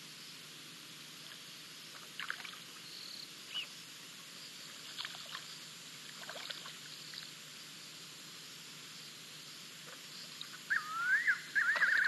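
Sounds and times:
steady hiss: 0:00.0 - 0:12.0
high bird chirps: 0:10.7 - 0:12.0.

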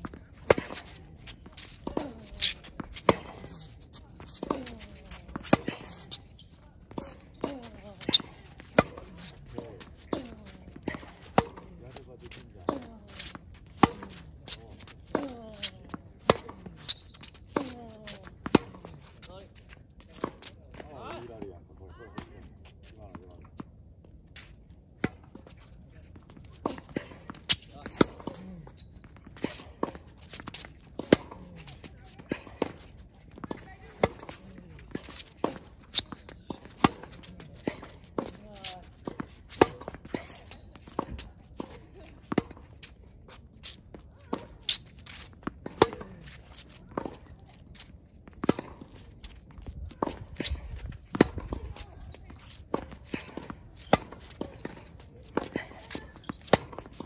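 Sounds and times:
racket striking tennis ball: 0:00.0 - 0:06.2, 0:06.9 - 0:11.8, 0:12.4 - 0:19.0, 0:26.6 - 0:43.0, 0:44.3 - 0:47.4, 0:48.3 - 0:49.0, 0:50.0 - 0:51.8, 0:52.6 - 0:57.0
tennis ball bouncing: 0:00.0 - 0:20.8, 0:25.0 - 0:57.0
footsteps shuffling on court: 0:00.0 - 0:57.0.

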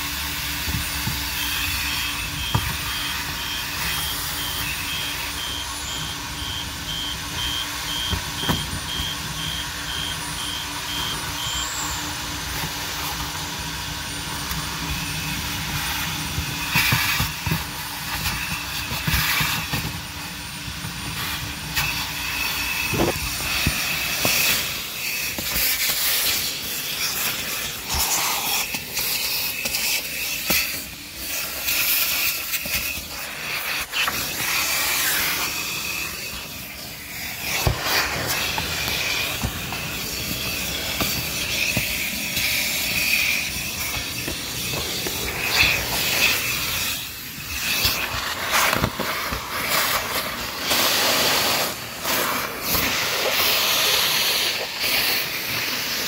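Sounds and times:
vacuum cleaner running: 0:00.0 - 0:56.0
reversing beeper: 0:01.3 - 0:12.6
rattling and crackling in nozzle: 0:14.3 - 0:56.0.

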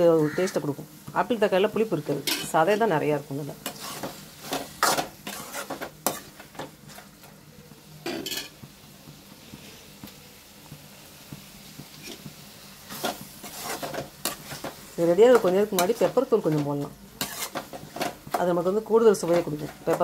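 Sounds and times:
vegetables sizzling: 0:00.0 - 0:20.0
spatula scraping metal pan: 0:03.6 - 0:06.6, 0:12.9 - 0:18.4.

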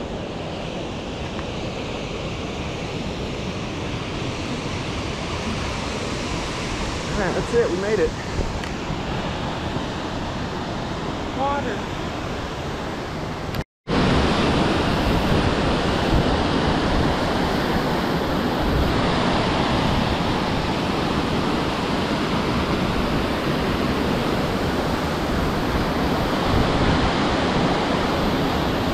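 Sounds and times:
waterfall rushing: 0:05.6 - 0:13.3, 0:13.9 - 0:28.9.

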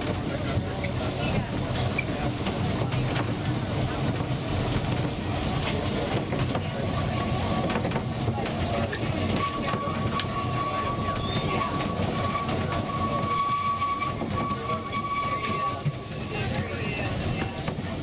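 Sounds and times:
train wheels rumbling on rail: 0:00.0 - 0:18.0
wheel flanges squealing: 0:08.4 - 0:18.0.

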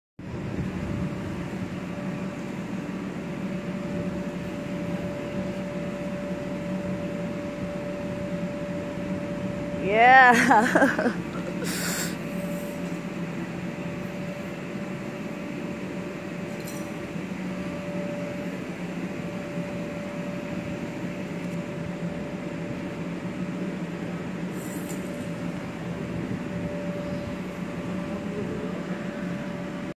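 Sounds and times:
low machine hum: 0:00.2 - 0:30.0.

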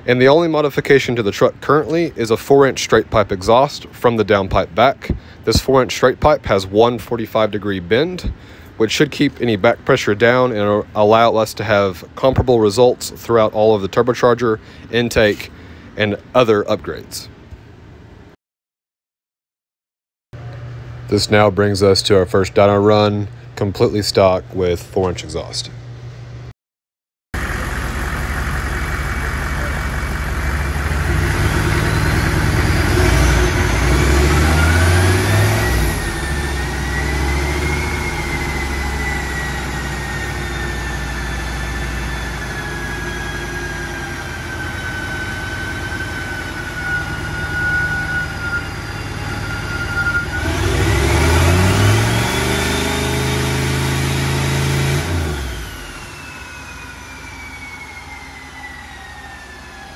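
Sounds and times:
diesel engine running hard: 0:27.4 - 0:59.9
turbo whistle: 0:30.9 - 0:53.2, 0:54.2 - 0:59.9.

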